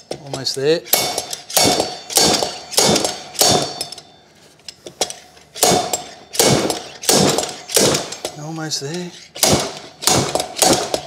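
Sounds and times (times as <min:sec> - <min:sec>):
slide hammer clanking: 0:00.0 - 0:04.1, 0:04.7 - 0:11.0.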